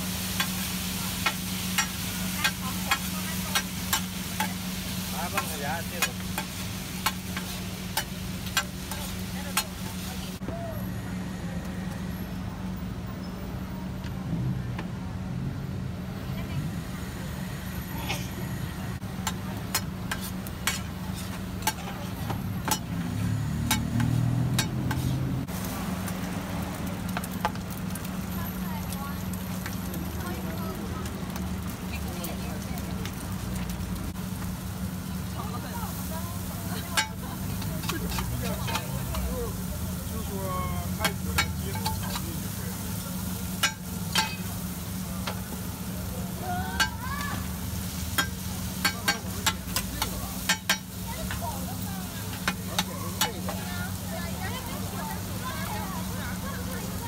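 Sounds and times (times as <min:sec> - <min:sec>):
food sizzling: 0:00.0 - 0:10.4, 0:16.7 - 0:57.0
metal spatula clacking on griddle: 0:01.2 - 0:04.6, 0:05.3 - 0:09.7, 0:19.2 - 0:23.0, 0:23.6 - 0:25.2, 0:36.8 - 0:39.2, 0:41.0 - 0:42.3, 0:43.6 - 0:44.4, 0:46.8 - 0:47.0, 0:48.1 - 0:51.4, 0:52.3 - 0:53.6
metal spatula scraping frying pan: 0:23.6 - 0:25.3.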